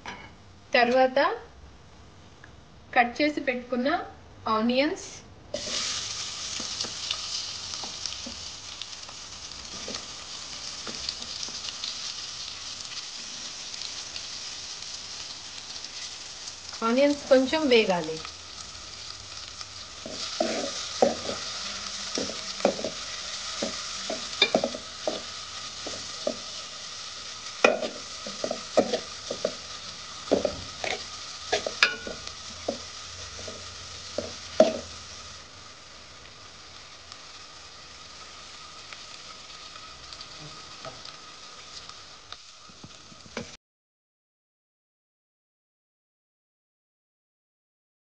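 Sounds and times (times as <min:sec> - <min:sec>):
onions sizzling in hot oil: 0:05.5 - 0:43.6
spoon knocking against pot: 0:23.6 - 0:24.8.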